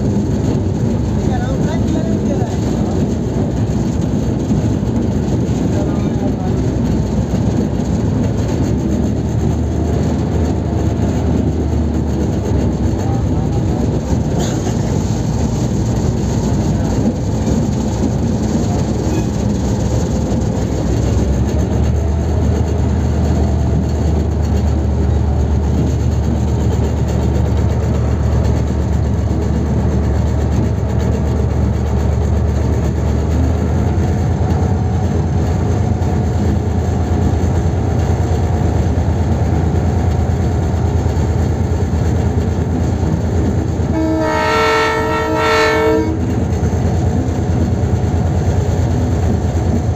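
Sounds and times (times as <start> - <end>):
diesel locomotive engine running: 0.0 - 49.9
train rolling over tracks: 0.0 - 49.9
locomotive horn blowing: 43.9 - 46.3.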